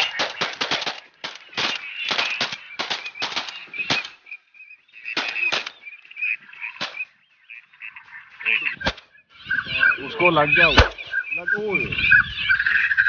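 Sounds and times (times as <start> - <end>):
shotgun shots: 0.0 - 4.2, 5.1 - 5.8, 6.8 - 7.0, 10.6 - 11.1.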